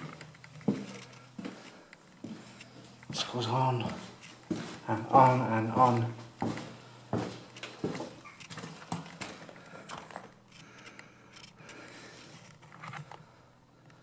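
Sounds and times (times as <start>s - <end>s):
footsteps crunching on debris: 0.0s - 9.6s.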